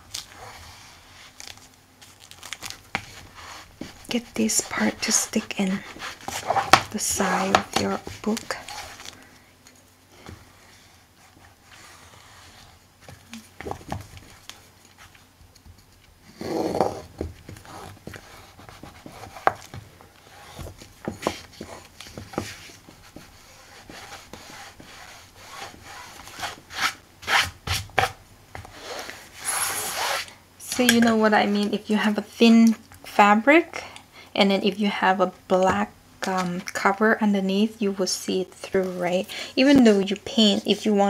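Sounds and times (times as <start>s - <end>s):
bone folder rubbing on fabric: 2.9s - 9.1s, 10.5s - 12.8s, 16.4s - 28.1s, 28.7s - 30.3s.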